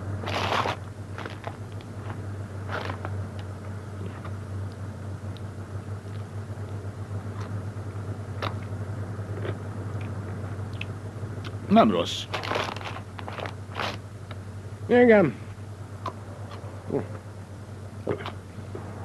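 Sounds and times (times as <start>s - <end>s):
car cabin drone: 0.0s - 19.0s
chili pepper bitten and chewed: 2.7s - 7.6s, 8.4s - 8.7s, 9.3s - 11.6s.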